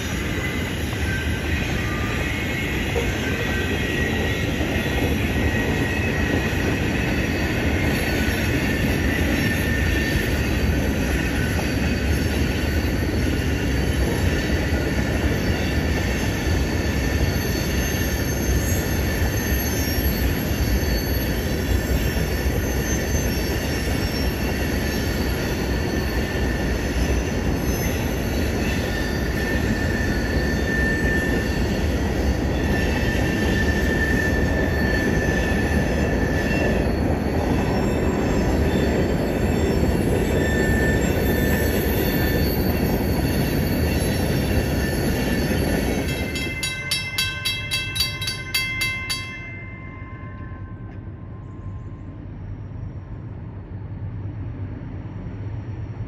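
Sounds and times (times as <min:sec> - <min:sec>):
freight train cars rolling: 0:00.0 - 0:52.3
train wheels squealing: 0:00.0 - 0:56.0.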